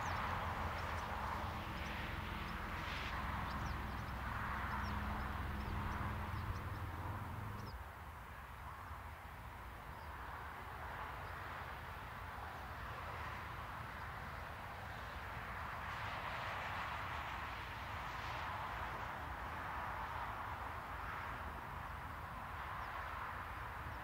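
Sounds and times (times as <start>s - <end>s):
small birds chirping: 0.0s - 7.8s.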